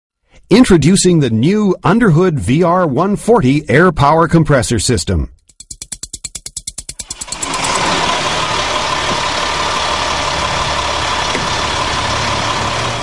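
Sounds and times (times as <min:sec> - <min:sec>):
truck engine running: 0:07.0 - 0:13.0.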